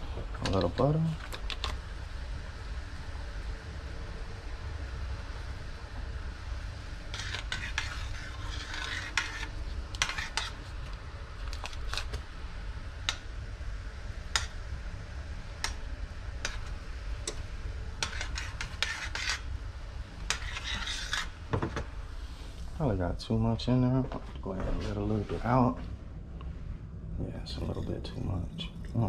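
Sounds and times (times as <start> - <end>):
spoon scraping pan: 7.1 - 10.8, 16.4 - 17.4, 18.0 - 19.5, 20.2 - 21.4.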